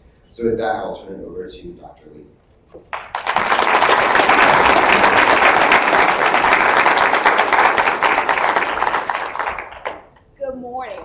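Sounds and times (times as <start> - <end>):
audience applauding: 2.9 - 10.1.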